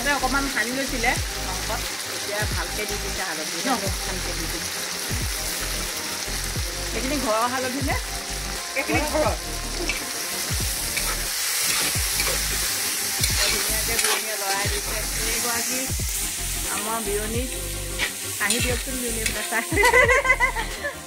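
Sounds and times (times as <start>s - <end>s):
meat sizzling in a wok: 0.0s - 21.0s
metal spatula scraping wok: 9.7s - 10.1s, 10.8s - 15.7s, 16.4s - 19.7s.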